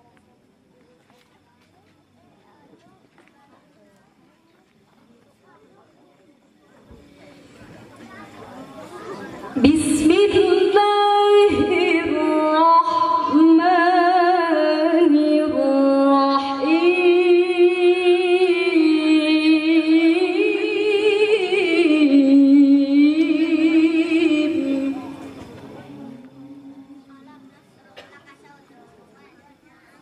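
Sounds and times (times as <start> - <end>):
woman chanting a recitation: 9.4 - 28.6.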